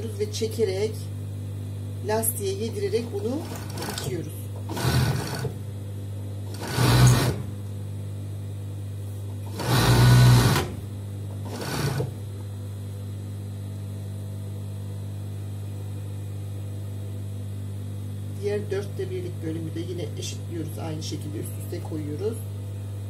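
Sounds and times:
steady low hum: 0.0s - 23.0s
overlock machine stitching: 3.4s - 5.6s, 6.5s - 7.5s, 9.4s - 10.8s, 11.4s - 12.2s.

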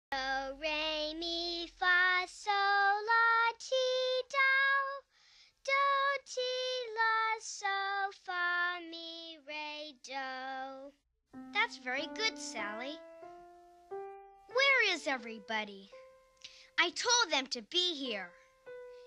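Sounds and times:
child singing: 0.1s - 11.0s, 11.6s - 13.1s, 14.5s - 16.0s.

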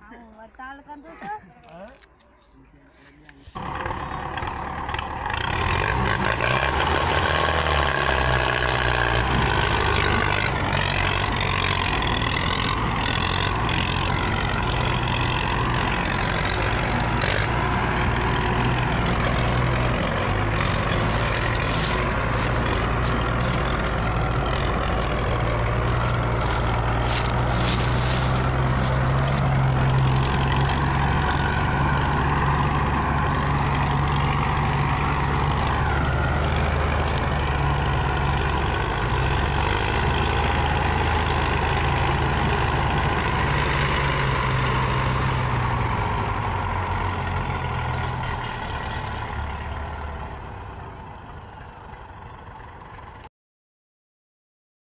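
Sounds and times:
diesel tractor engines straining: 0.0s - 53.2s.

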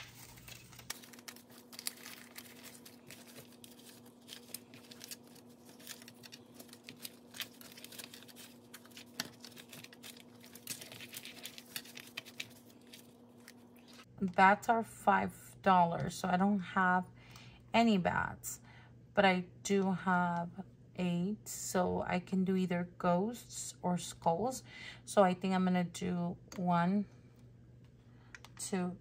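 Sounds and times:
paper bills rustling and clicking: 0.0s - 14.1s
steady low hum: 0.0s - 29.0s.

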